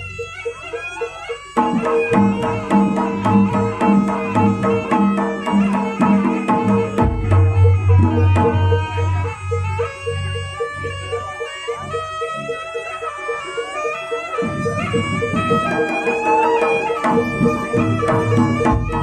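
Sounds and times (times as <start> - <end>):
sustained pitched melody: 0.0 - 19.0
rapid hand drum strokes: 1.6 - 10.6, 14.4 - 19.0.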